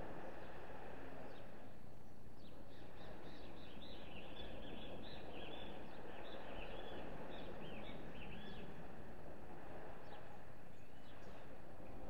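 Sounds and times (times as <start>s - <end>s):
sparrows chirping: 2.1s - 8.7s, 10.0s - 11.4s.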